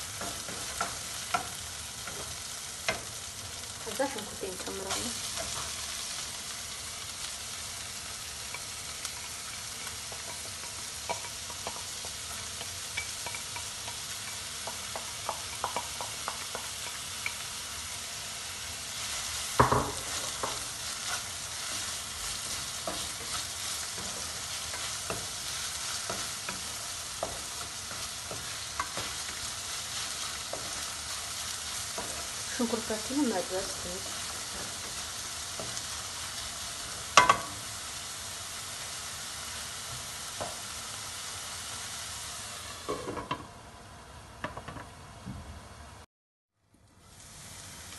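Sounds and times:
onion sizzling in oil: 0:00.0 - 0:45.3, 0:46.8 - 0:47.9
spatula scraping a pan: 0:18.9 - 0:32.8.

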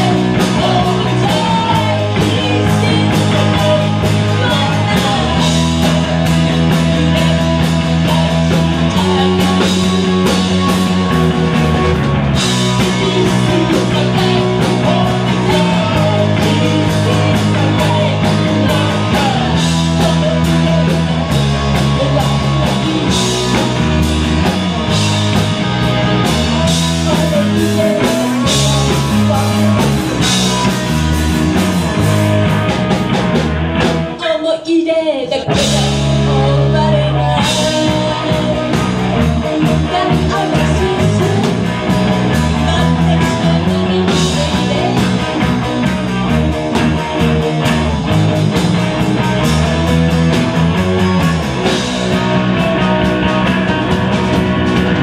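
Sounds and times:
person singing: 0:00.0 - 0:11.6, 0:12.4 - 0:30.9, 0:34.1 - 0:45.8
drum kit: 0:00.0 - 0:34.6, 0:35.3 - 0:55.0
bass line: 0:00.0 - 0:55.0
distorted electric guitars: 0:00.0 - 0:55.0.

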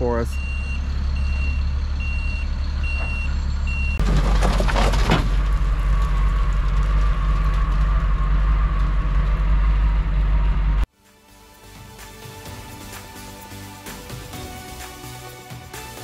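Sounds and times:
truck engine running: 0:00.0 - 0:10.9
reversing alarm beeping: 0:00.3 - 0:04.0
rough scraping and rattling: 0:02.8 - 0:10.8.

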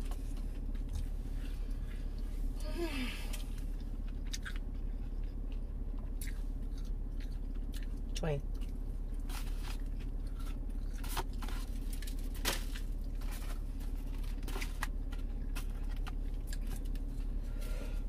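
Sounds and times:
steady low hum: 0:00.0 - 0:18.0
mouth chewing food: 0:03.6 - 0:12.1.

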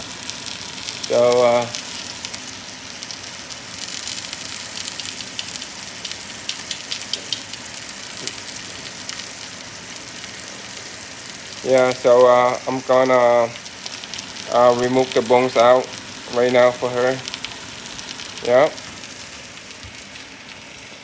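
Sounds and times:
steak sizzling in frying pan: 0:00.0 - 0:21.0.

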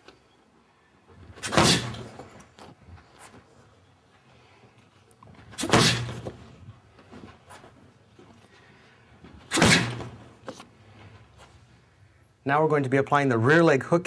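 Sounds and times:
kicks smacking a kicking shield: 0:01.4 - 0:02.3, 0:05.6 - 0:06.5, 0:09.5 - 0:10.3.

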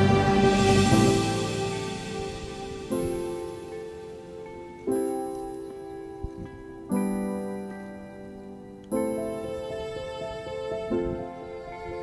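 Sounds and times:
soft instrumental music: 0:00.0 - 0:12.0.

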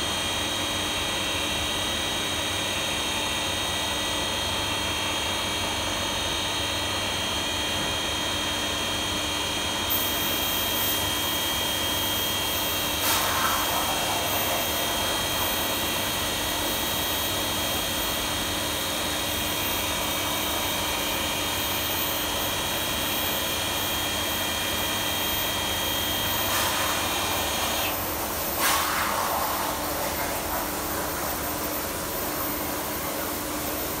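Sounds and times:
machine mechanical hum: 0:00.0 - 0:34.0
high even whines: 0:09.9 - 0:17.7.

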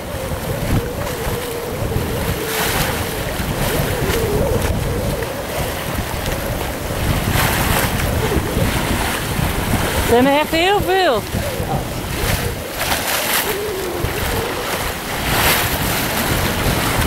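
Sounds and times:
hull rushing through waves: 0:00.0 - 0:17.0
wind buffeting microphone: 0:00.0 - 0:17.0.

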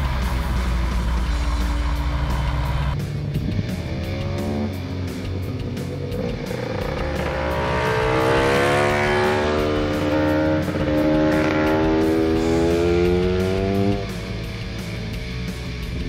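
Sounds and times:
background music: 0:00.0 - 0:16.0
scooter engine revving: 0:03.6 - 0:15.1.

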